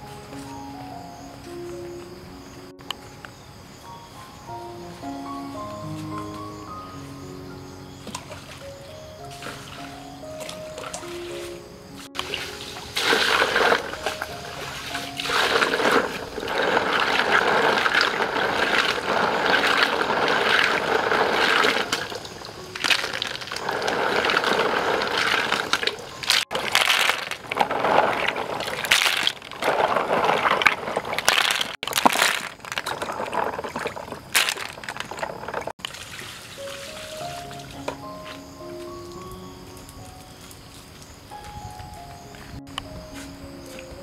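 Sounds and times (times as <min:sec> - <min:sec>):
water splashing: 0:08.0 - 0:39.4
water pouring into basin: 0:12.2 - 0:37.8.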